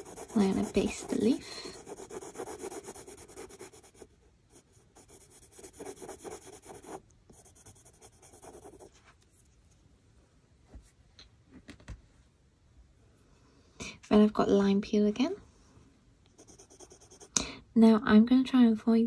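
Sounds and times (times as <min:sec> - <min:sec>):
pencil scratching on paper: 0:00.0 - 0:09.0, 0:16.4 - 0:17.4.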